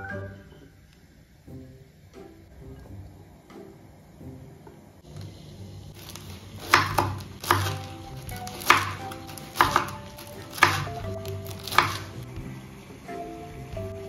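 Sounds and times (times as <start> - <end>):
soft background music: 0.0 - 14.0
knife chopping on wooden board: 6.0 - 12.2.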